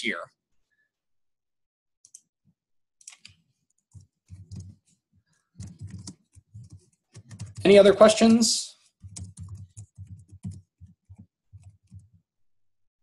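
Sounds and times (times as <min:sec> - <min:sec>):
faint keyboard typing: 0:02.0 - 0:02.3, 0:03.0 - 0:12.2.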